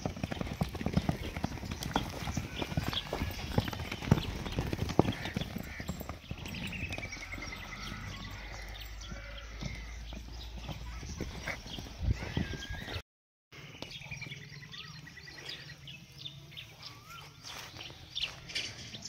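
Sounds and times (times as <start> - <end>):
horse hoofbeats on sand: 0.0 - 13.0
horse whinnying: 1.8 - 9.8.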